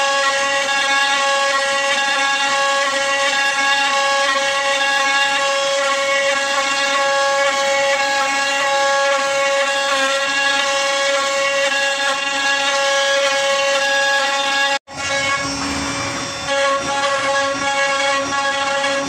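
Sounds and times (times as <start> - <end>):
router spindle whine: 0.0 - 19.0
bit milling into wood: 0.6 - 19.0.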